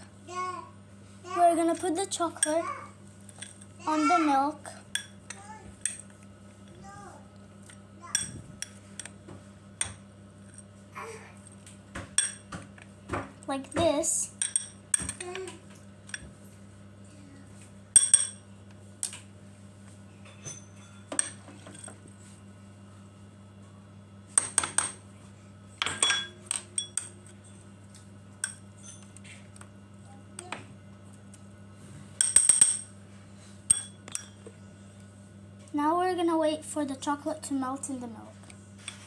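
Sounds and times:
steady low hum: 0.0s - 39.0s
metal spoon clinking on glass bowl: 2.4s - 2.6s, 18.0s - 18.4s, 25.8s - 27.2s, 33.7s - 34.4s.

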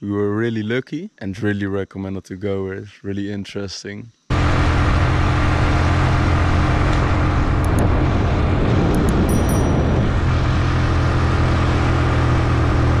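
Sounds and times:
road noise: 4.3s - 13.0s.

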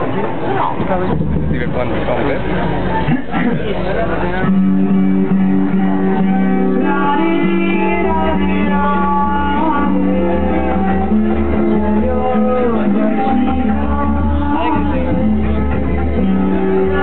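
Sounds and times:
deep bass layer: 0.7s - 17.0s
held melodic notes: 3.7s - 17.0s.

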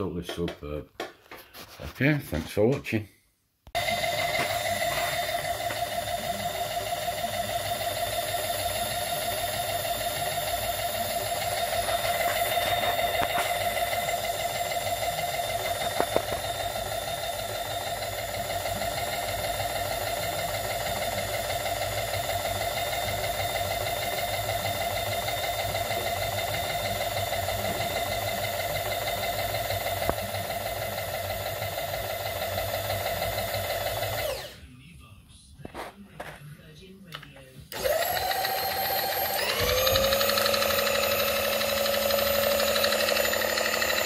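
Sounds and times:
motor and gear whine: 3.8s - 34.6s, 37.7s - 44.0s.

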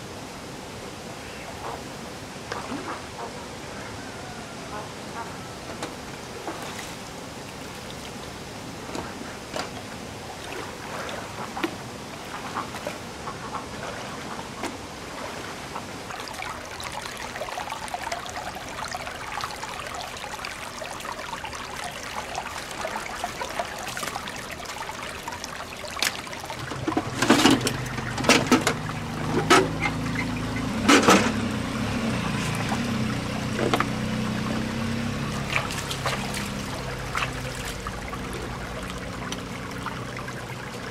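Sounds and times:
flowing water trickling: 2.4s - 40.9s
shallow water splashing: 6.4s - 40.9s.

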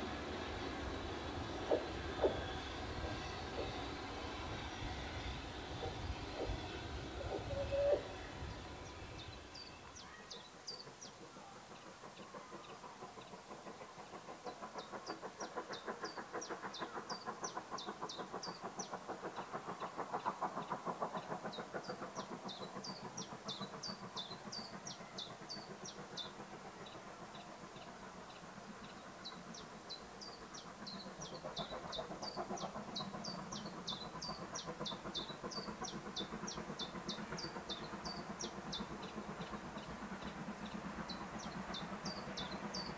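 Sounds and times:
distant steam locomotive exhaust beats: 0.0s - 42.9s.

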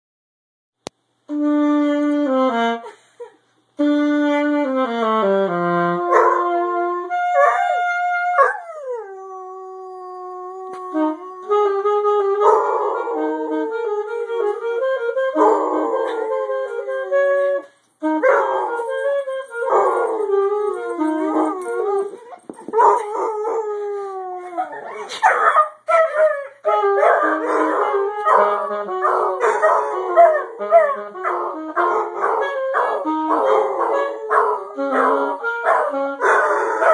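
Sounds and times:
saxophone playing held notes: 1.3s - 3.0s, 3.8s - 9.0s, 10.4s - 24.6s, 26.6s - 36.9s
dog howling: 18.3s - 36.9s.

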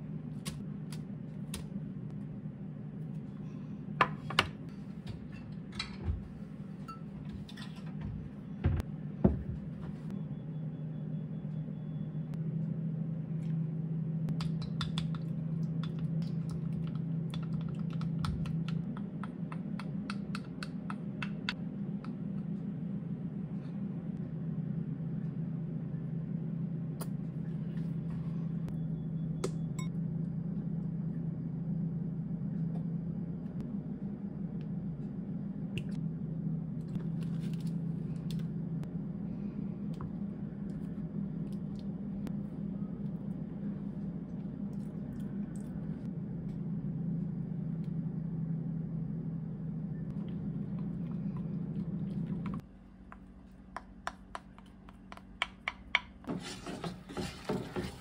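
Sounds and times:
steady low hum: 0.0s - 58.0s
wooden spoon stirring in glass bowl: 55.9s - 58.0s.

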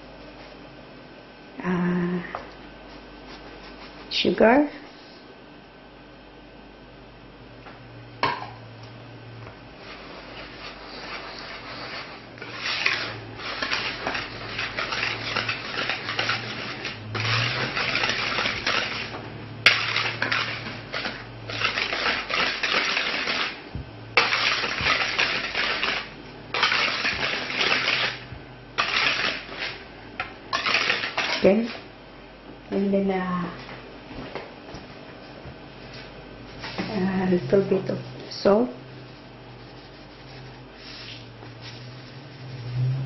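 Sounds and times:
whisk scraping and rattling in bowl: 9.8s - 23.6s, 24.2s - 31.9s.

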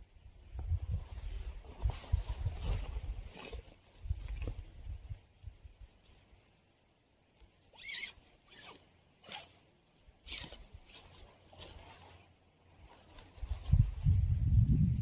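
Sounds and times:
wind buffeting microphone: 0.6s - 3.3s, 13.4s - 15.0s
tent fabric rustling: 0.9s - 4.6s, 7.5s - 14.4s.

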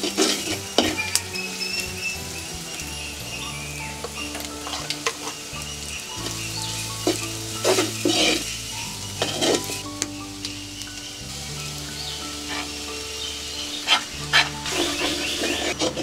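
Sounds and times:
spoon scraping pot: 0.0s - 1.9s, 7.0s - 8.5s, 9.2s - 9.9s, 13.8s - 16.0s
food sizzling in pot: 0.0s - 16.0s.

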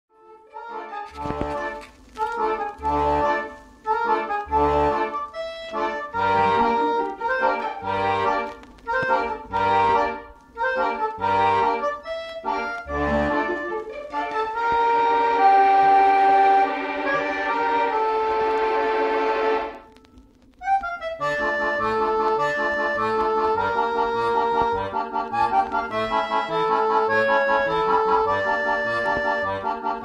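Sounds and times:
melodic tune: 2.6s - 19.8s
deep bass notes: 4.0s - 10.2s, 12.9s - 18.9s.

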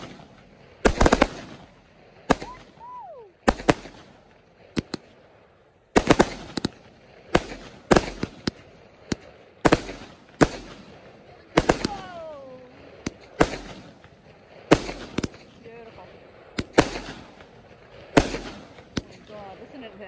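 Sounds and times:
fireworks bangs: 0.0s - 20.0s
whistling tone: 2.4s - 3.3s.

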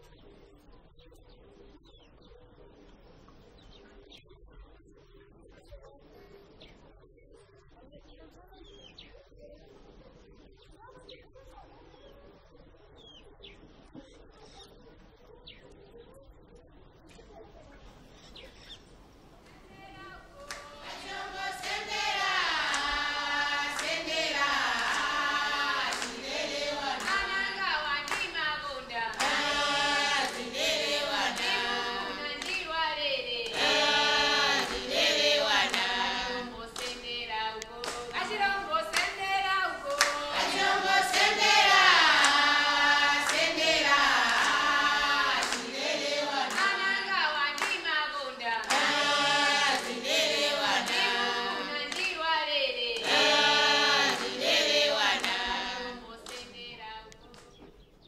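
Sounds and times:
group of voices singing: 19.6s - 57.5s
hand claps: 20.4s - 32.7s, 33.4s - 48.0s, 48.6s - 52.2s, 53.0s - 56.6s.

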